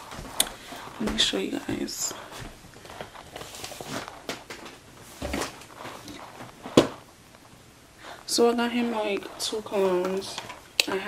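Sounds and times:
objects being moved around: 0.0s - 7.1s
footsteps in a room: 0.0s - 10.6s.

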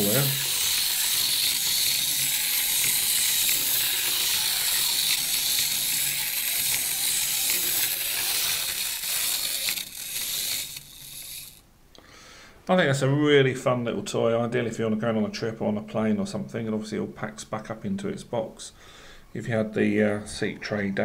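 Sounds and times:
clockwork toy motor whirring: 0.0s - 11.6s.

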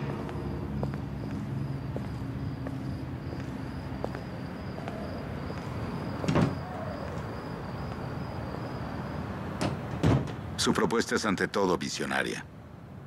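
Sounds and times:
door shutting thump: 6.2s - 6.6s, 9.6s - 10.4s.

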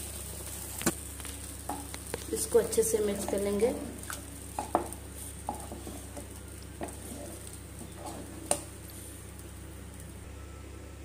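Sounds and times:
spoon stirring thick food: 3.1s - 8.9s.

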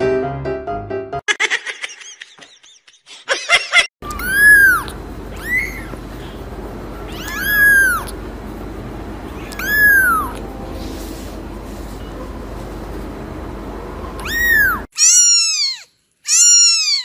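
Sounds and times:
kitten mewing: 4.0s - 6.0s, 7.1s - 8.2s, 9.4s - 10.4s, 14.2s - 17.0s.

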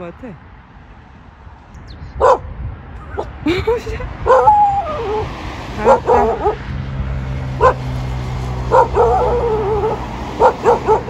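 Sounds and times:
dog barking: 2.2s - 2.5s, 4.3s - 4.6s, 5.8s - 6.7s, 7.6s - 7.8s, 8.7s - 11.0s
dog whining: 4.3s - 6.6s, 8.7s - 11.0s.

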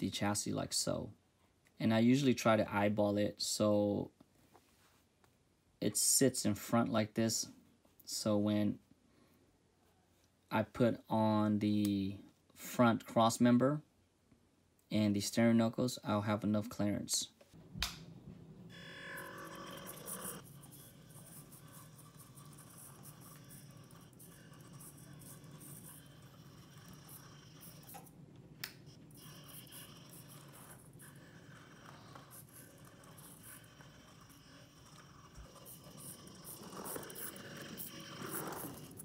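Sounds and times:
toy car motor whirring: 18.7s - 28.2s, 28.8s - 39.0s.

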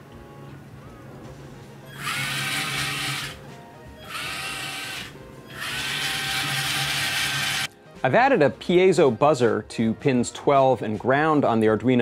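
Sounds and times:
small motors whirring: 1.9s - 3.4s, 4.0s - 7.7s.

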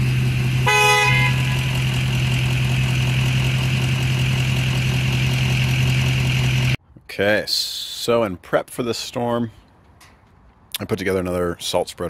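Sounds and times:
truck engine humming: 0.0s - 6.8s
horn toot: 0.6s - 1.9s.

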